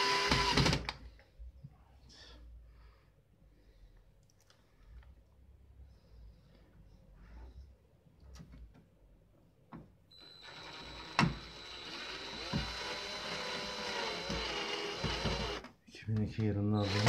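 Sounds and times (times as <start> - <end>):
cordless drill motor whine: 0.0 - 0.8, 10.1 - 15.6, 16.8 - 17.0.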